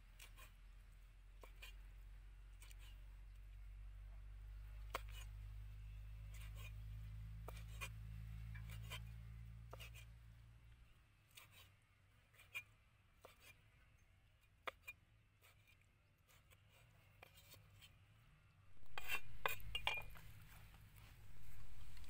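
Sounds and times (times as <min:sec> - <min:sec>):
scraping and knocking on board: 0:18.8 - 0:20.7.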